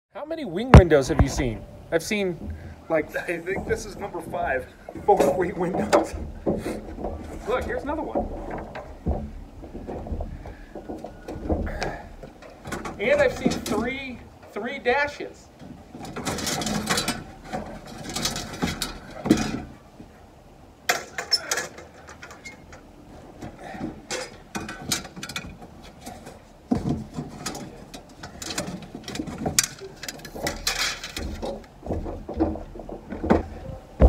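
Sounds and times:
rustling: 0.4 - 34.0
metal parts clattering: 16.0 - 19.7, 24.0 - 32.5.

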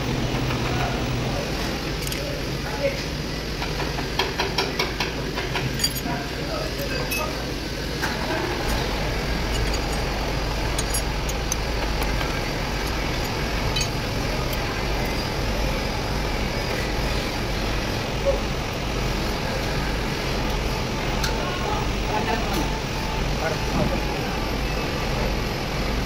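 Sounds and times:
engine rumbling: 4.9 - 22.2.

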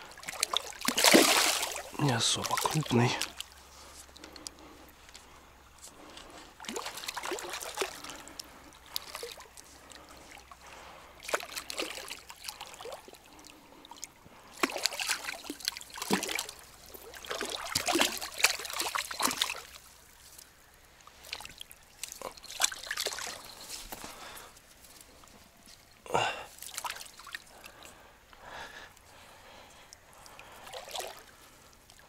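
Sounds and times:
fish thrashing and splashing: 0.1 - 3.6, 6.6 - 10.6, 11.2 - 14.0, 14.6 - 20.2, 21.2 - 24.3, 30.3 - 31.4.

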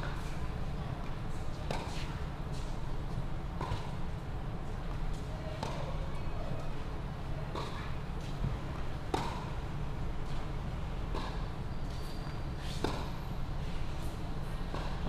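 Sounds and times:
tennis ball bouncing: 9.1 - 9.5, 12.8 - 13.1, 14.7 - 15.0.

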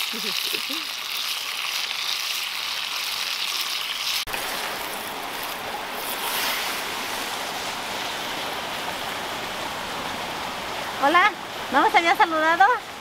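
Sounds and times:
chicken sizzling in hot oil: 0.0 - 8.9
stream rushing: 0.9 - 13.0.

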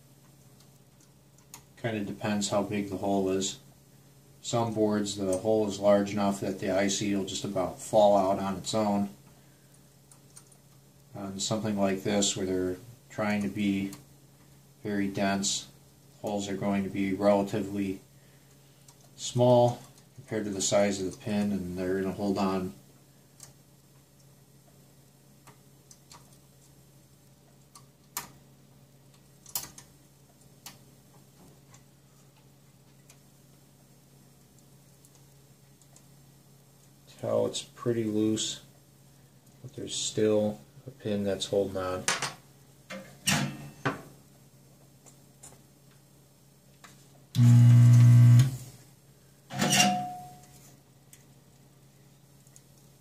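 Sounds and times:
small sharp clicks of chip pins: 27.5 - 28.4, 29.1 - 33.2
desoldering pump buzzing: 47.3 - 48.7.

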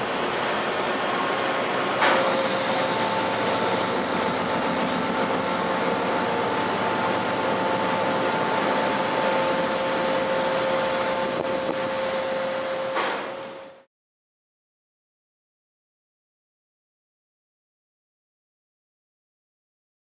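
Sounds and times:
wind and water: 0.0 - 13.4
ship engines and ventilation: 0.0 - 13.9.

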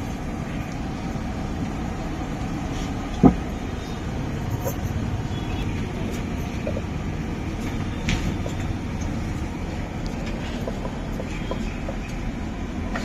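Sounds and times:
street food kitchen rumble: 0.0 - 13.0
utensils clinking: 3.2 - 12.2.

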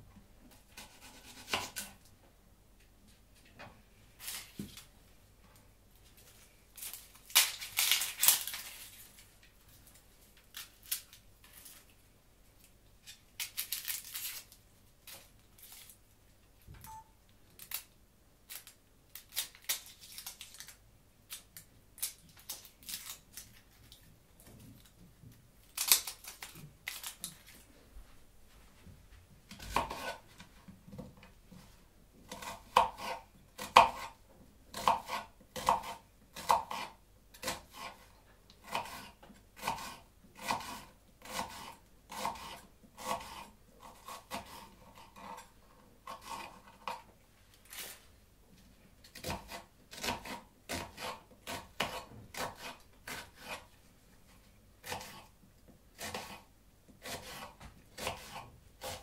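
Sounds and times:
onion skin crackling and tearing: 6.3 - 12.0, 13.0 - 16.0, 17.5 - 24.1, 25.6 - 27.6, 47.5 - 48.0.

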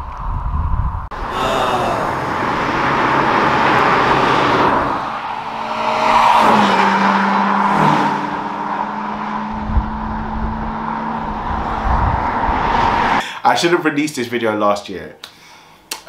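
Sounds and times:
car driving by: 1.1 - 13.2.

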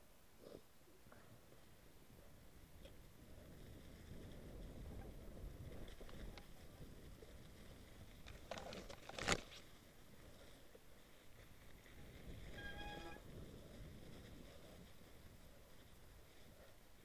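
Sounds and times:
bike tyres rumbling on snow: 1.2 - 17.0
brief steady squeal: 12.5 - 13.2.

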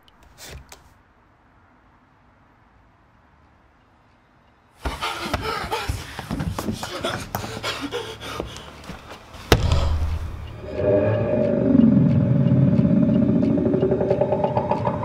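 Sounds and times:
loud slam: 9.5 - 10.5
low rumble: 10.0 - 15.0.

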